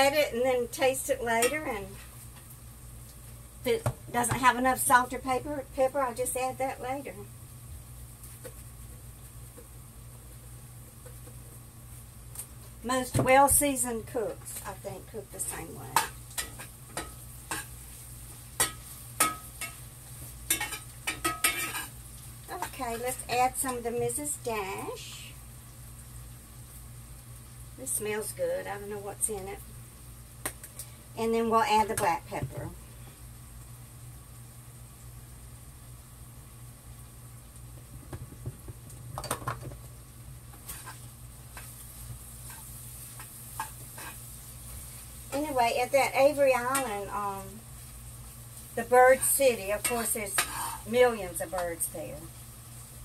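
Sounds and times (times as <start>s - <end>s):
faint sizzle: 0.0s - 53.0s
metal spoon scraping a skillet: 15.9s - 17.8s, 20.5s - 22.0s, 40.6s - 41.8s, 42.4s - 44.3s, 48.8s - 51.0s.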